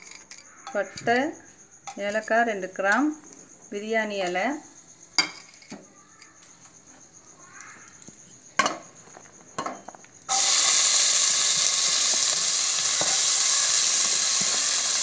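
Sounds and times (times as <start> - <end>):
onions sizzling in hot oil: 10.3 - 15.0.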